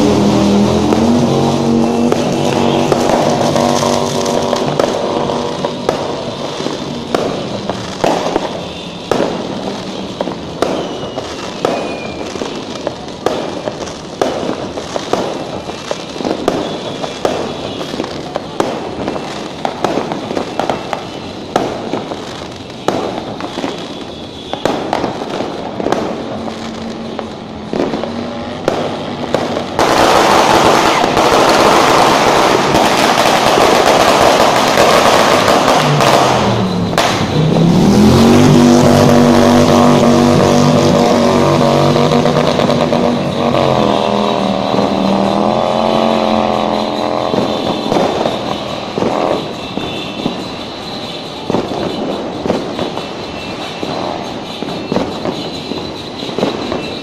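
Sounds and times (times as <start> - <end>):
engine revving: 0.0 - 7.4, 27.7 - 49.6
dense firecracker string crackle: 0.0 - 57.0
fireworks banging and popping: 0.0 - 57.0.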